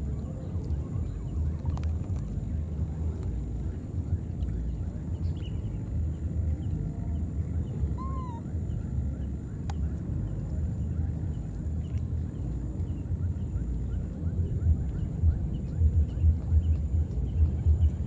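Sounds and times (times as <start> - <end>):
low rumble: 0.0 - 18.0
short arched call: 8.0 - 8.4.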